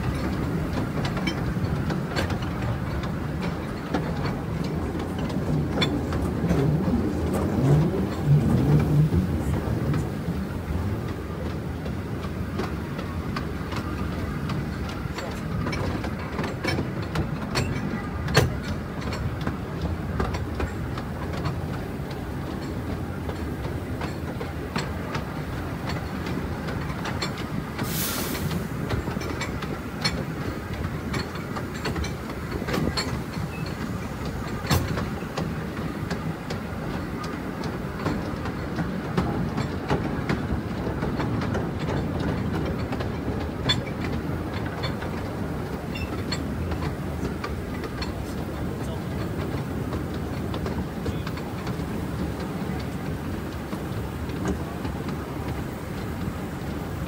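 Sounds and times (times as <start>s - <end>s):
train rumble: 0.0s - 57.0s
wheels clicking over rail joints: 0.0s - 57.0s
brief hiss: 27.8s - 28.7s.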